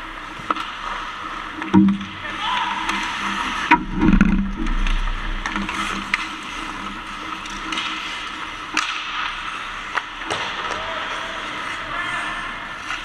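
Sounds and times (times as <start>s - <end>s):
hockey sticks and puck clacking: 0.2s - 13.0s
skates scraping ice: 2.2s - 3.7s, 4.7s - 13.0s
low rumbling knock: 3.7s - 5.6s.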